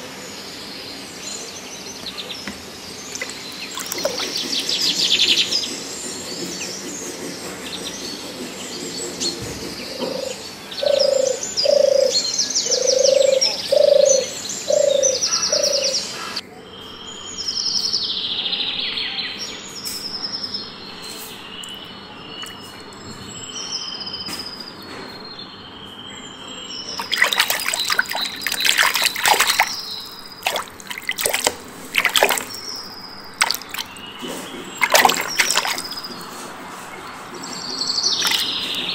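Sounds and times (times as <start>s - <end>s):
birds chirping: 0.0s - 38.9s
water splashing: 3.1s - 4.9s, 26.9s - 36.5s, 38.1s - 38.9s.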